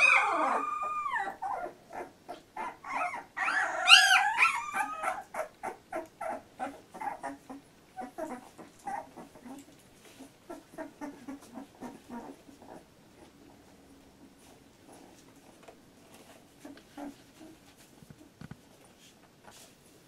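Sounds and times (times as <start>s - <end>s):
puppies whimpering: 0.0s - 12.9s.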